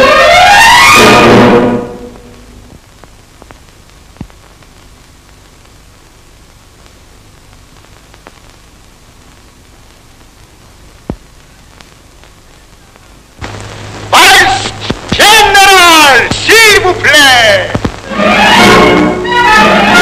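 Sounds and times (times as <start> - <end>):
brass orchestral music: 0.0 - 2.5, 18.1 - 20.0
film soundtrack hiss and crackle: 0.0 - 20.0
faint clicks: 2.7 - 5.8, 6.4 - 13.6, 17.7 - 18.1.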